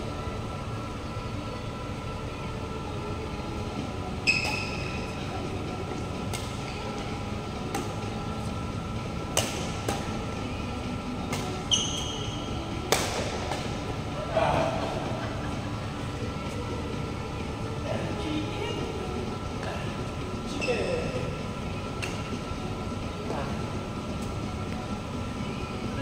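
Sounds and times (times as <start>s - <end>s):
steady background hum: 0.0s - 26.0s
shoe squeaks on court floor: 4.2s - 4.9s, 11.6s - 12.6s
rackets striking shuttlecock: 4.3s - 5.1s, 6.2s - 6.9s, 7.6s - 8.1s, 9.2s - 10.4s, 11.3s - 13.9s, 22.0s - 22.3s.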